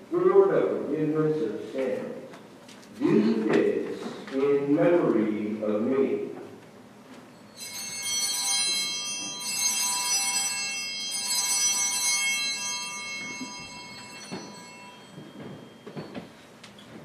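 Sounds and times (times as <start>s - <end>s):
altar bells ringing: 7.3s - 16.6s
faint knocks: 14.2s - 17.0s.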